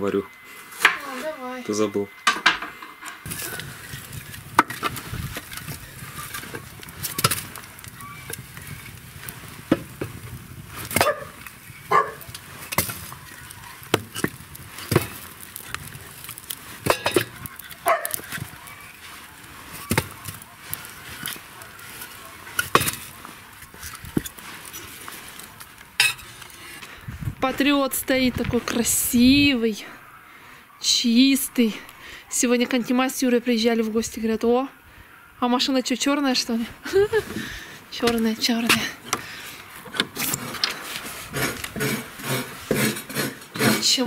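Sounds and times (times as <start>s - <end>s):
logs knocking in stove firebox: 2.2s - 8.9s, 9.6s - 13.2s, 13.8s - 18.6s, 19.8s - 21.4s, 22.5s - 23.1s.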